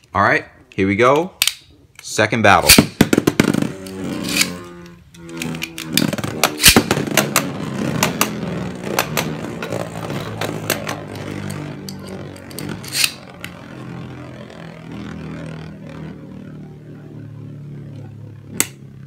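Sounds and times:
spinning tops clacking: 2.7s - 4.6s, 5.3s - 13.2s
whir of spinning tops: 2.7s - 19.0s.

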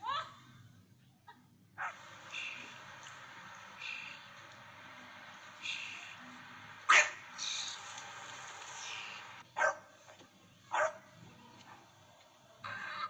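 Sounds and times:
small dog barking: 1.8s - 2.0s, 6.9s - 7.2s, 9.6s - 9.9s, 10.7s - 11.0s.

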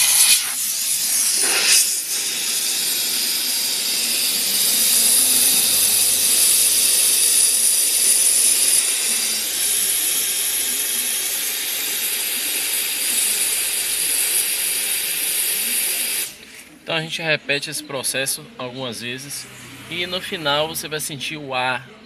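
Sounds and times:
steam cleaner hissing: 0.0s - 16.8s.

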